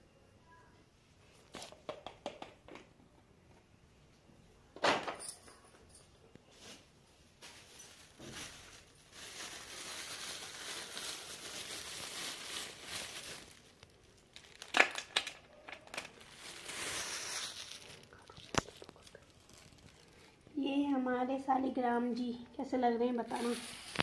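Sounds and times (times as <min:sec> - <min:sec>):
plastic packets crinkling: 0:06.6 - 0:20.6, 0:23.2 - 0:24.0.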